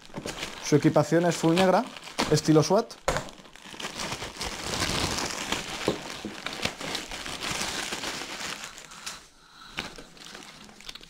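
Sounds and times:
plastic bag crinkling: 0.0 - 9.2, 9.8 - 11.0.

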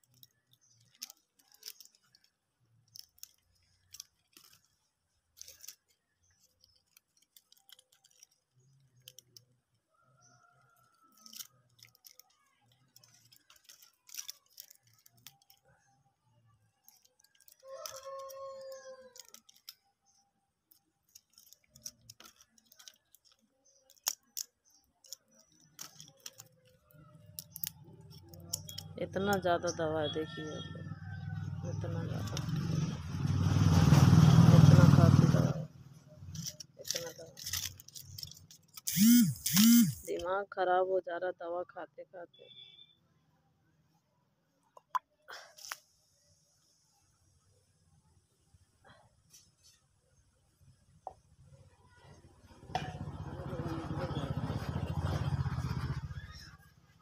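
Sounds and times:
medicine packets crinkling: 0.0 - 9.8, 10.9 - 16.0, 16.7 - 29.7, 36.3 - 40.3.

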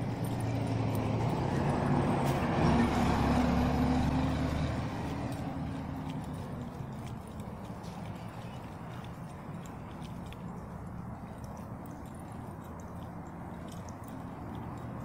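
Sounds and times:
heavy vehicle engine rumbling past: 0.0 - 8.6.

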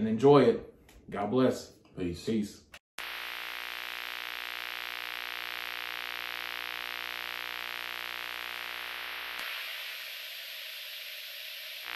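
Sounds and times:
video static hiss: 3.0 - 11.9.

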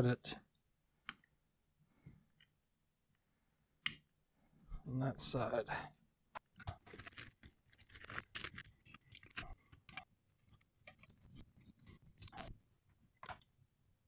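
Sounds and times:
cable rustling: 6.4 - 13.4.

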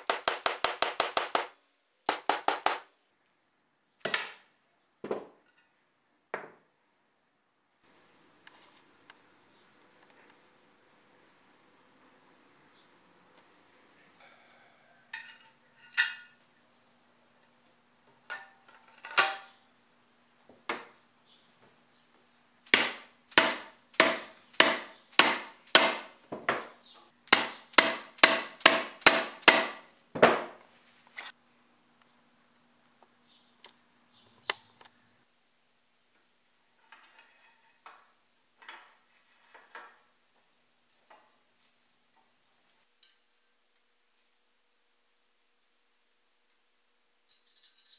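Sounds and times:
hammer striking metal: 22.7 - 26.1, 27.3 - 29.8
metal clinks: 47.3 - 47.9.

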